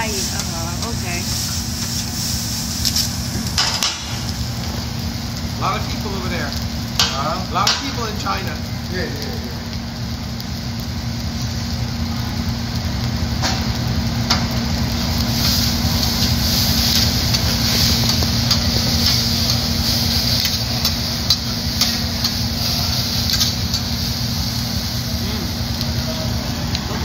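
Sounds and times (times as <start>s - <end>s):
rice sizzling on griddle: 0.0s - 27.0s
steady low hum: 0.0s - 27.0s.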